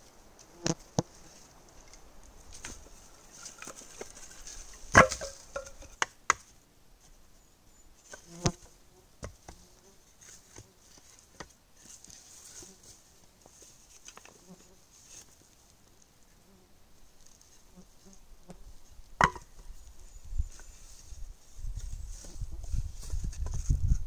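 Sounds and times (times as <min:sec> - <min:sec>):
wooden sticks knocking: 0:04.9 - 0:06.4, 0:19.2 - 0:19.5.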